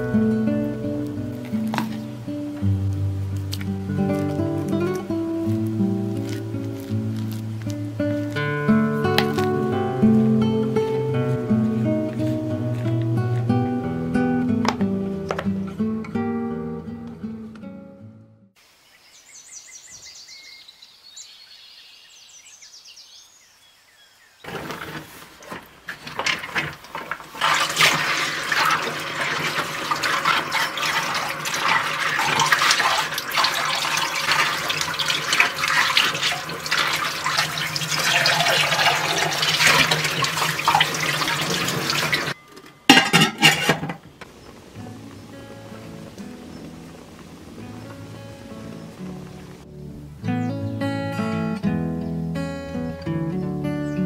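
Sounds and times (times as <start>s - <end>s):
acoustic guitar music: 0.0s - 18.6s, 24.5s - 54.0s
water splashing: 0.9s - 13.3s, 24.4s - 43.9s, 44.5s - 49.7s
dishes clinking: 42.1s - 44.0s.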